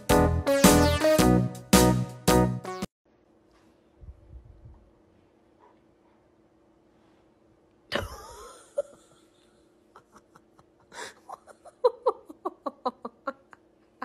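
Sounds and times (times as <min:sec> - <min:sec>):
person laughing: 0:07.9 - 0:14.0.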